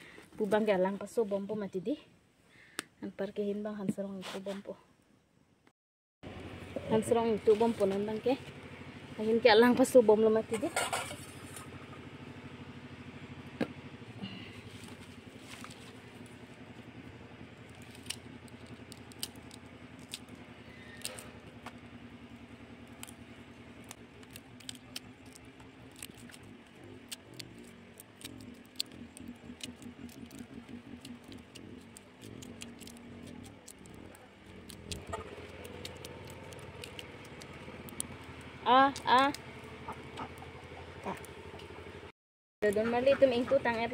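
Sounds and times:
steady low hum: 6.3 - 42.1
leaf rustling: 14.2 - 41.2
calyces snapping off stems: 17.6 - 21.9, 22.7 - 41.7.

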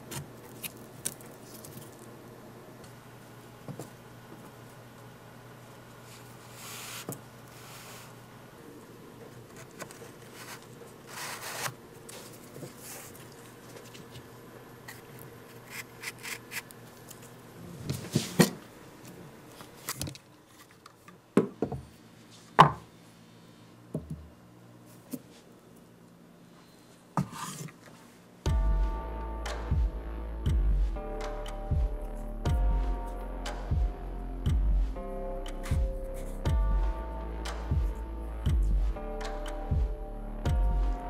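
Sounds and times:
cardboard parts rubbing and clicking: 9.5 - 14.2.

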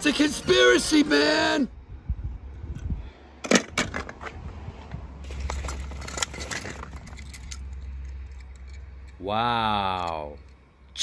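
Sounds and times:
toy cars clicking and clattering: 5.2 - 9.2, 9.8 - 10.6.

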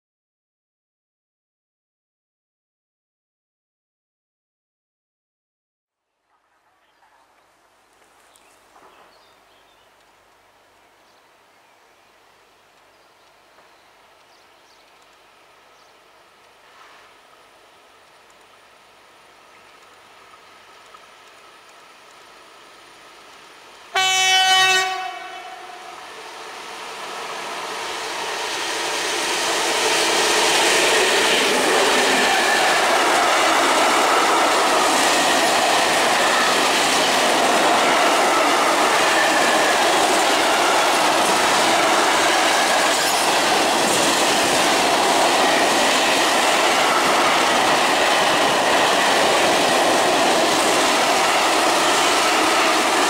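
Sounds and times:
train wheels clickety-clack: 8.7 - 9.2, 27.8 - 53.0
locomotive horn blast: 23.9 - 26.1.

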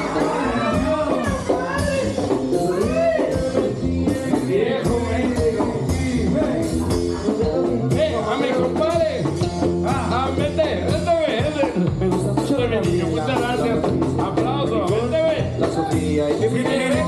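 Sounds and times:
person singing: 0.0 - 8.0
bass: 0.0 - 17.0
latin band music: 0.0 - 17.0.

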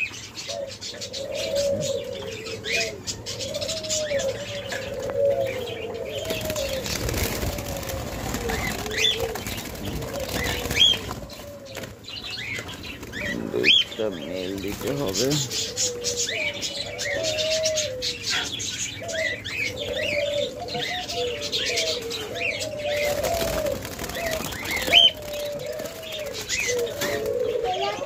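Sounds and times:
doves cooing: 0.0 - 28.0
wings flapping against cage: 6.2 - 13.4, 14.4 - 15.6, 22.9 - 27.4.

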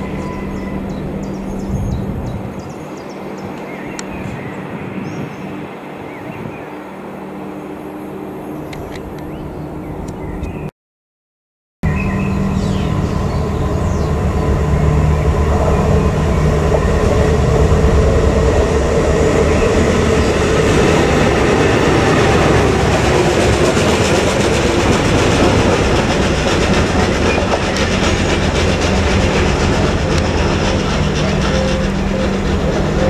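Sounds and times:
diesel engine: 11.9 - 33.0
wheels clattering over rails: 15.4 - 33.0.

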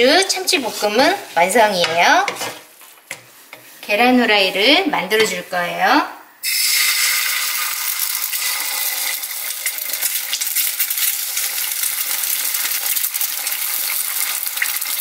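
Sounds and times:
eggs sizzling in oil: 6.4 - 15.0.

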